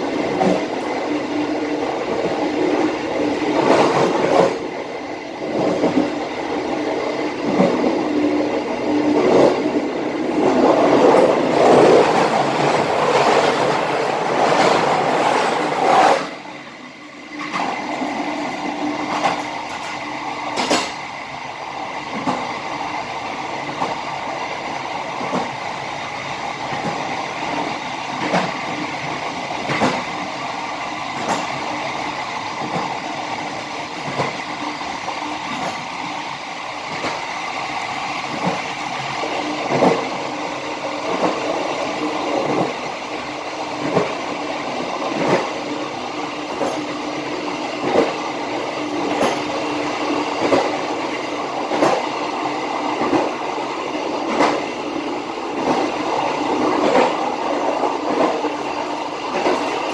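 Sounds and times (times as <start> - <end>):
train wheels rumbling on rails: 0.0 - 59.9
sharp rail clacks: 20.6 - 21.0.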